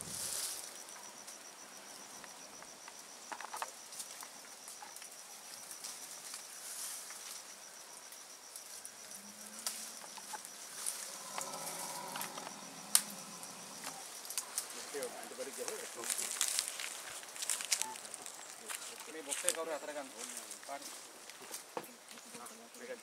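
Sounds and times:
insect trilling: 0.0 - 21.0
snaps and clicks in undergrowth: 2.2 - 23.0.

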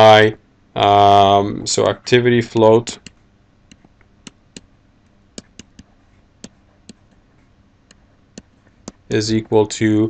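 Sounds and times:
stylus tapping on pen tablet: 5.4 - 7.2, 7.9 - 9.0.

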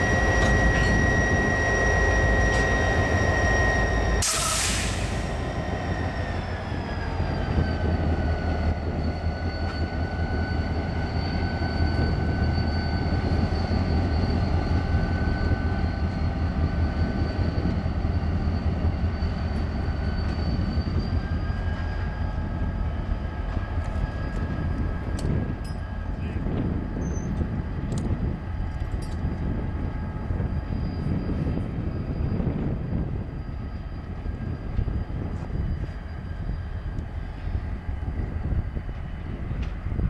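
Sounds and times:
diesel locomotive engine drone: 0.0 - 40.0
high whine: 0.0 - 40.0.

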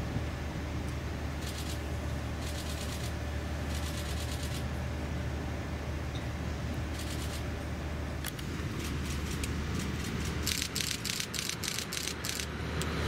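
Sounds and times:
electric train low hum: 0.0 - 13.0
rapid fine ticking: 8.8 - 12.5.

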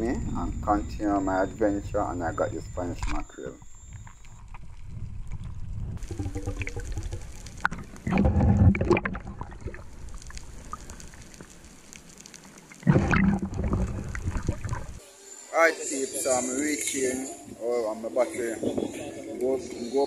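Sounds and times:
underwater churning and bubbling: 0.0 - 15.0
rushes of water and bubbles: 2.3 - 15.0.

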